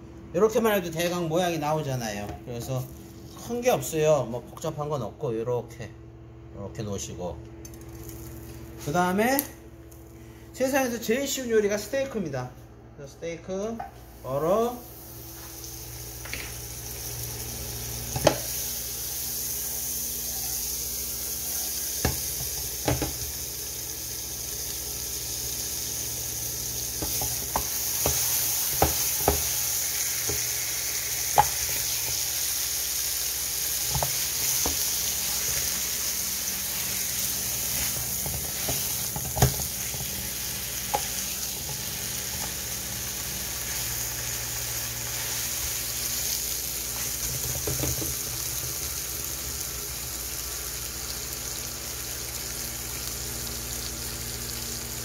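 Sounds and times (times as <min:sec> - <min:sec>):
meat sizzling in a frying pan: 0:14.1 - 0:55.0.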